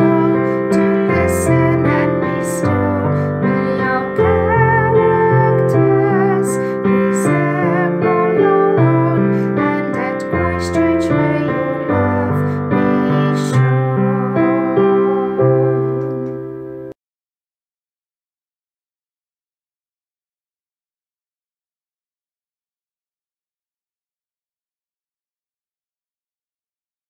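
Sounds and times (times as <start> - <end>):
woman singing a slow hymn-like tune: 0.0 - 16.6
piano accompaniment: 0.0 - 17.0.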